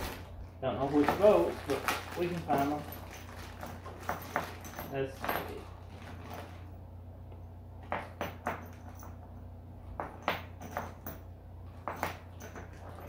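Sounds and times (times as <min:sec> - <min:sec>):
plastic bag rustling: 0:00.0 - 0:06.8
steady low hum: 0:00.0 - 0:13.0
metal bolts clinking on hard floor: 0:00.9 - 0:06.6, 0:07.8 - 0:13.0.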